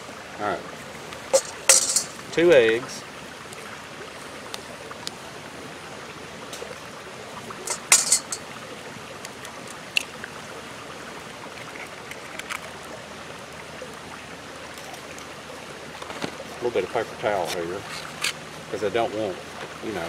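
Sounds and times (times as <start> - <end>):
creek rushing: 0.0 - 20.0
egg cracking on metal bowl: 1.4 - 2.2, 7.7 - 8.4.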